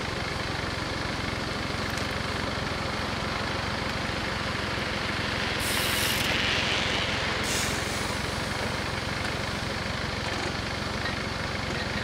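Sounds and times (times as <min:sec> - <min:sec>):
short hisses: 0:05.6 - 0:06.2.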